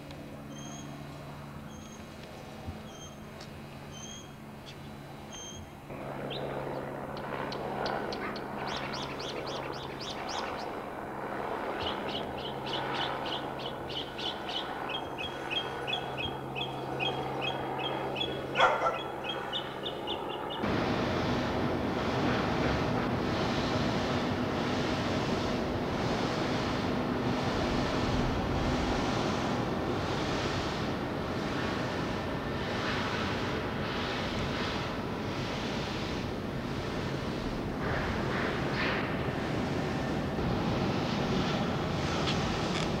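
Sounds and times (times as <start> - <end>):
traffic: 0.0 - 43.0
wind: 0.0 - 43.0
small birds chirping: 1.7 - 10.8, 11.7 - 20.6.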